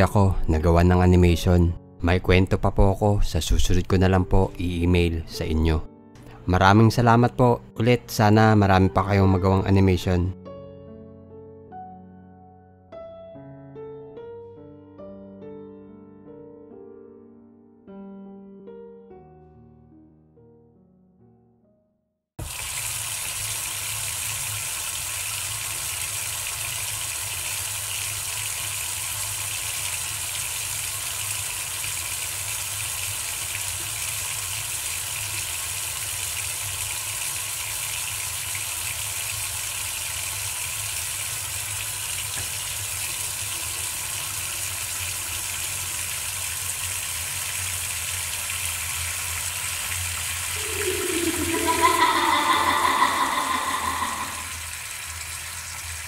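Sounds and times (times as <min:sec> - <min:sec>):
water running from tap: 0:22.4 - 0:56.0
loud wavering pitched sound: 0:50.5 - 0:54.6.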